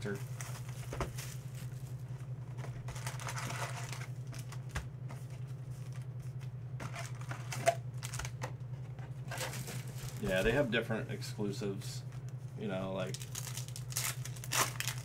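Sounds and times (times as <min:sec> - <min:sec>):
steady low hum: 0:00.0 - 0:15.0
card pack wrappers crinkling: 0:02.6 - 0:06.1, 0:06.8 - 0:08.4, 0:09.3 - 0:10.6, 0:13.0 - 0:15.0.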